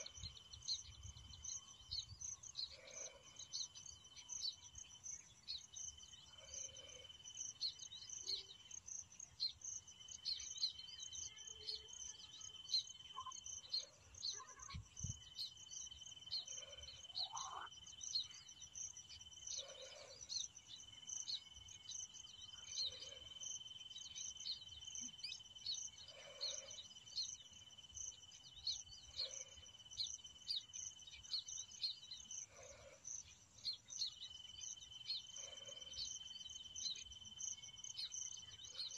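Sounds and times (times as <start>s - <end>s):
crickets trilling: 3.9s - 32.5s.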